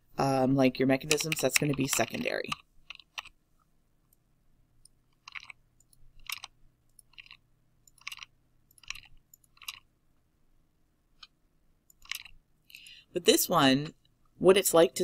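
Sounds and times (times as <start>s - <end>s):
keyboard and mouse clicks: 0.9s - 3.4s, 4.8s - 9.9s, 11.2s - 12.4s.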